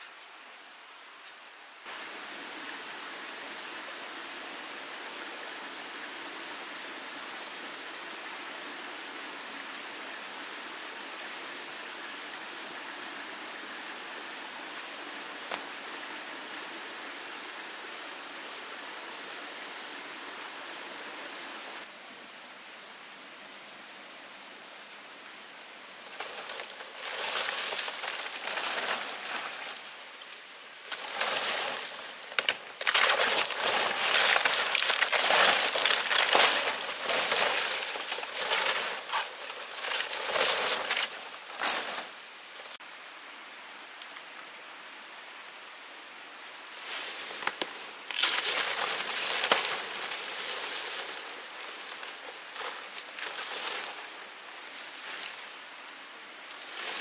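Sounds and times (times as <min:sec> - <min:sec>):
dry leaves rustling and crunching: 0:26.0 - 0:42.7, 0:46.8 - 0:55.7, 0:56.5 - 0:57.0.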